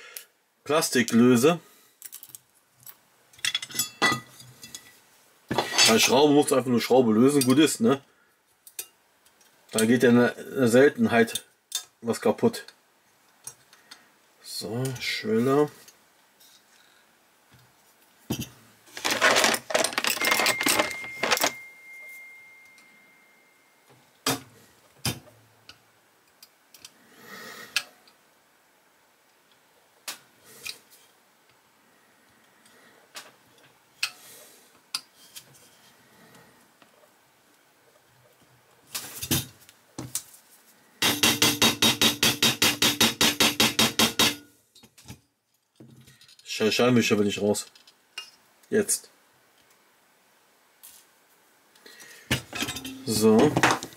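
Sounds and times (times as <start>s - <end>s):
metal model car parts clattering: 19.0s - 21.6s, 52.4s - 53.9s
faint high ring: 20.4s - 23.9s, 52.6s - 53.2s.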